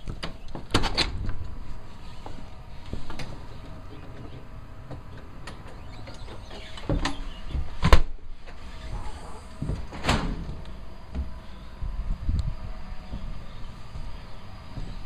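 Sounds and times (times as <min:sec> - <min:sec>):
low rumble: 0:07.4 - 0:15.0
footsteps on wooden deck: 0:11.1 - 0:15.0.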